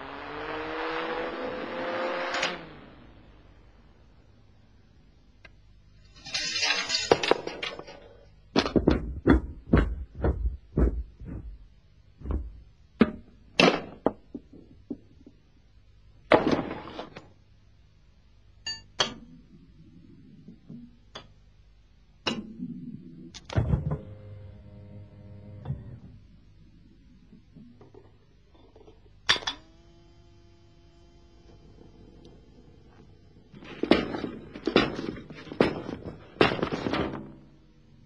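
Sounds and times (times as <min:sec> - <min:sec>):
rolling scrape: 0:06.0 - 0:08.3
metal parts knocking and clinking: 0:06.1 - 0:08.8.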